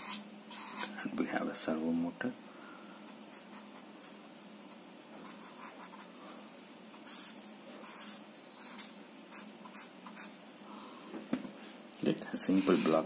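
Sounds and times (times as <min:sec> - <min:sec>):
marker scratching on paper: 0:00.0 - 0:01.0, 0:03.1 - 0:06.1, 0:06.9 - 0:10.4, 0:12.5 - 0:13.0.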